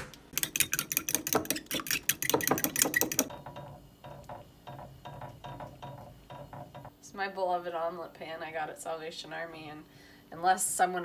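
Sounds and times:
whisk clicking against bowl: 0:00.3 - 0:03.4.

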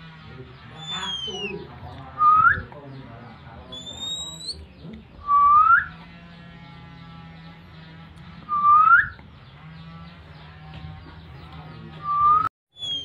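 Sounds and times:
person whistling bird calls: 0:00.8 - 0:01.5, 0:03.8 - 0:04.6, 0:05.2 - 0:05.9, 0:08.5 - 0:09.2, 0:12.0 - 0:13.0.

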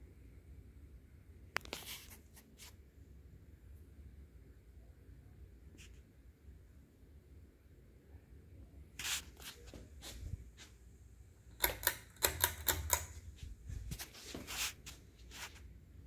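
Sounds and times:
ceiling fan hum: 0:00.0 - 0:16.0
fan pull-chain switch clicking: 0:11.5 - 0:13.2.

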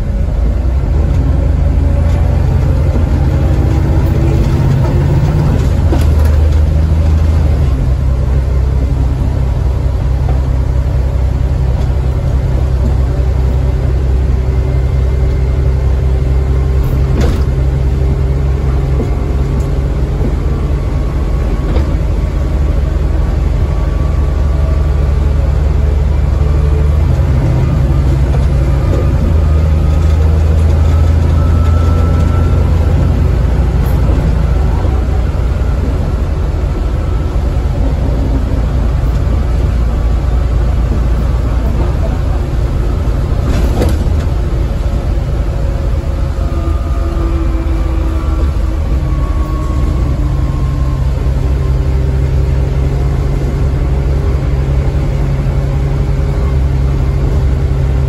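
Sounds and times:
bus diesel engine drone: 0:00.0 - 0:58.0.

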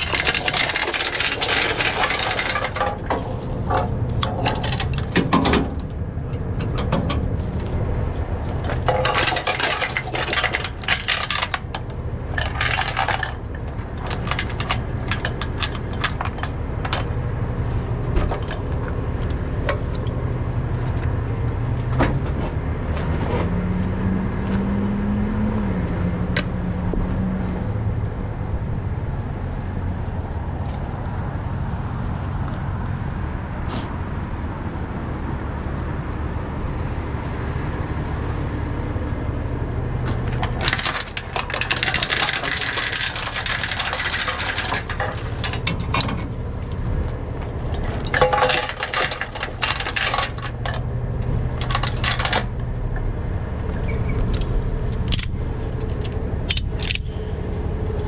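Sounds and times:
metal chain clinking and rattling: 0:00.0 - 0:05.9, 0:08.5 - 0:17.2, 0:18.1 - 0:19.3, 0:40.2 - 0:57.2.

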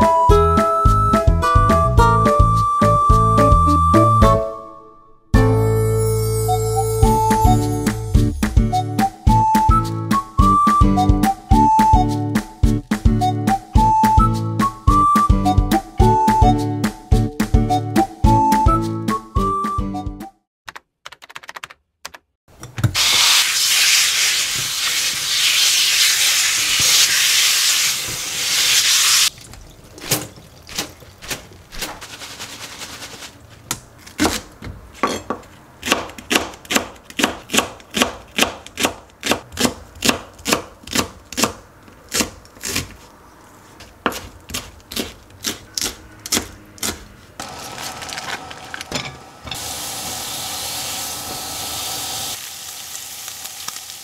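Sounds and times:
oil hissing in frying pan: 0:23.0 - 0:29.3, 0:49.5 - 0:54.0
knife chopping on plastic board: 0:33.7 - 0:43.0, 0:44.0 - 0:47.1.

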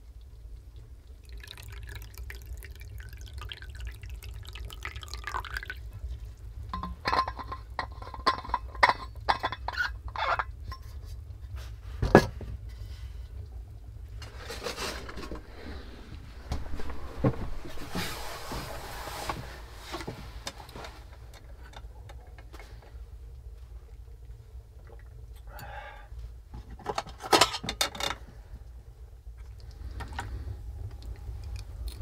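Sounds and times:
hot drink pouring into cup: 0:00.7 - 0:06.7
steady low rumble: 0:10.4 - 0:26.7, 0:28.3 - 0:32.0.

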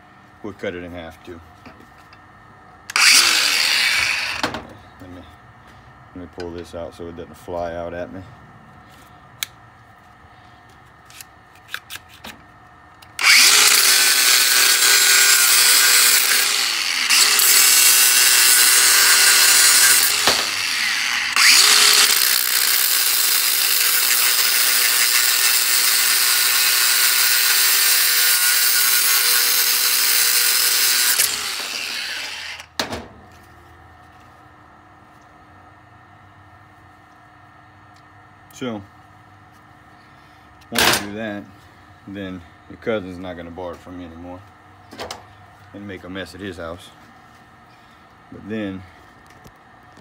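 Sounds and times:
angle grinder cutting metal: 0:02.9 - 0:04.5, 0:13.2 - 0:32.7.

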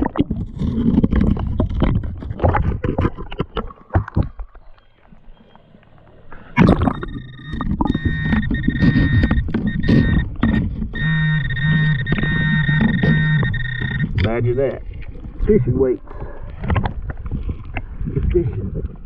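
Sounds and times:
digging and splashing in riverbed: 0:00.0 - 0:05.6
metal detector high tone: 0:06.6 - 0:14.8.

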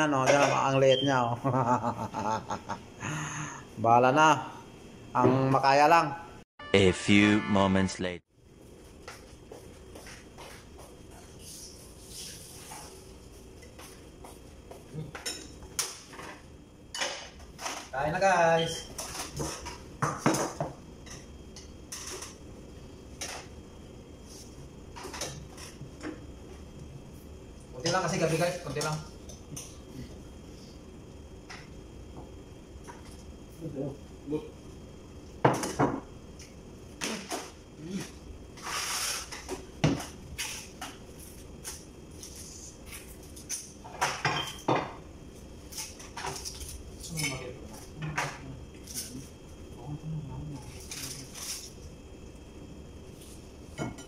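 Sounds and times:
short scraping hiss: 0:38.6 - 0:39.4.

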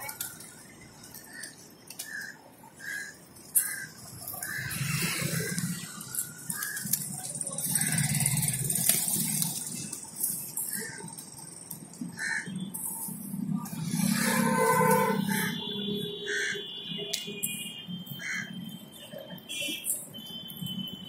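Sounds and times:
pigeon wings flapping: 0:05.5 - 0:10.6.

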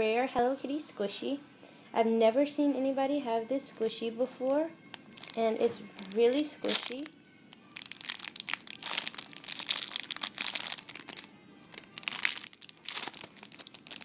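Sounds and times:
plastic packaging crinkling: 0:05.0 - 0:14.0.

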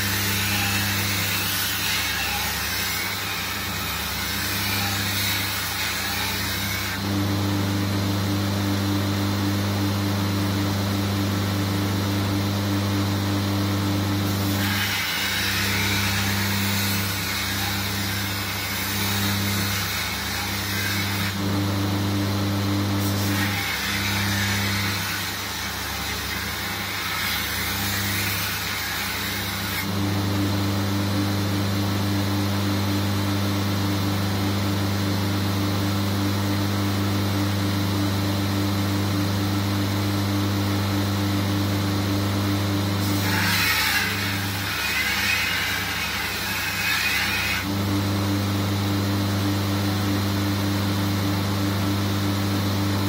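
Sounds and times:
steel grinding on belt: 0:00.0 - 0:07.0, 0:14.3 - 0:21.5, 0:23.0 - 0:30.0, 0:43.0 - 0:47.7
belt grinder motor humming: 0:14.0 - 0:30.6, 0:43.0 - 0:47.9.

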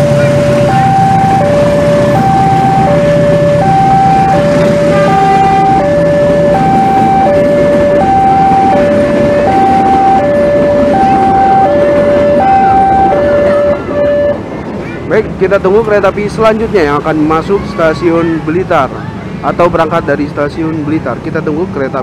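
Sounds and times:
two-tone crossing alarm: 0:00.0 - 0:14.5
low engine hum: 0:00.0 - 0:16.0
train coaches rumbling: 0:00.0 - 0:22.0.

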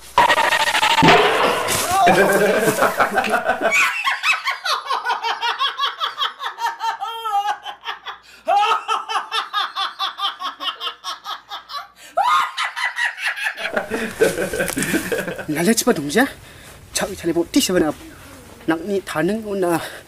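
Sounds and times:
woman laughing heartily: 0:02.0 - 0:15.4.

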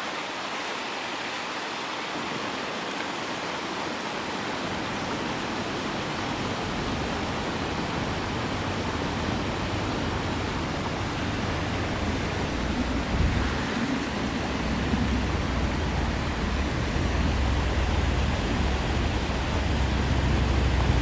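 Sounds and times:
steady rushing noise: 0:00.0 - 0:21.0
low rumble: 0:09.5 - 0:21.0.

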